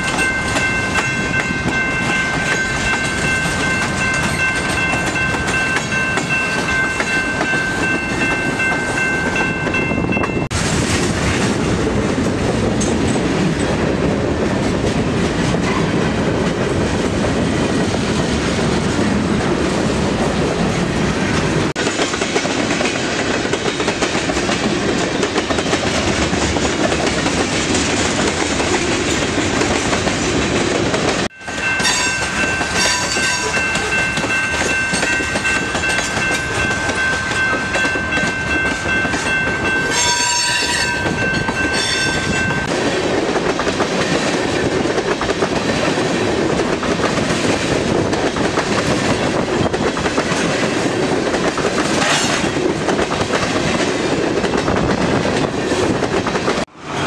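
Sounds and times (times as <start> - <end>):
railroad crossing bell ringing: 0.0 - 10.5, 31.2 - 42.7
train wheels clacking on rails: 0.0 - 57.0.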